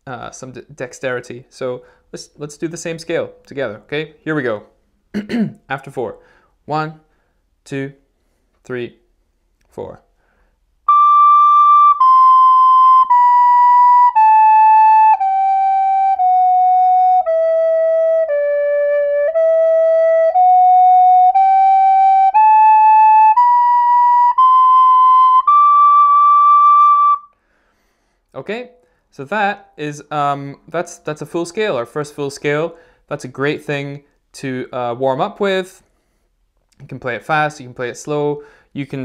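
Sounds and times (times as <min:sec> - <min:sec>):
recorder playing a scale: 0:10.9 - 0:27.3.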